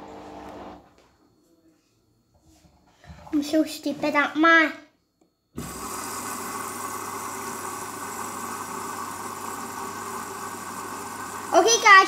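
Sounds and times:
washing machine running: 0.0 - 0.8, 5.6 - 12.0.

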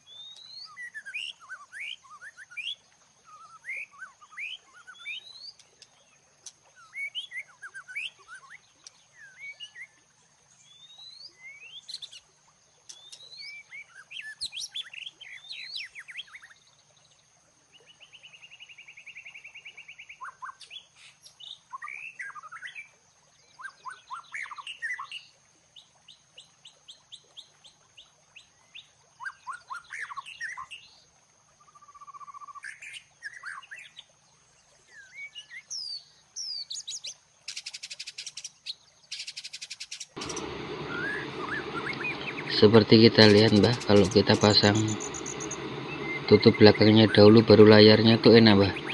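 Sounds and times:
songbirds chirping and singing: 35.0 - 48.9
fast buzzy bird trill: 39.2 - 48.9.

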